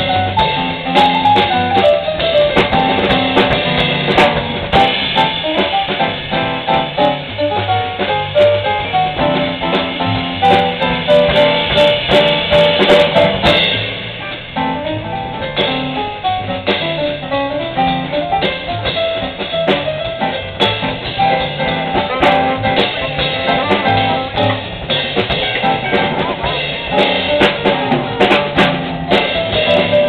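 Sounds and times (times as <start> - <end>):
guitar: 0.0 - 16.9, 17.8 - 30.0
drum kit rimshots and cymbals: 0.0 - 30.0
upright bass: 0.0 - 30.0.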